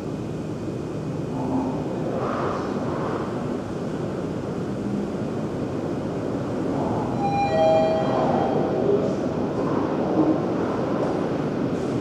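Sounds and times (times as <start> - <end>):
road traffic rumble: 0.0 - 12.0
two-note descending tone: 7.2 - 8.7.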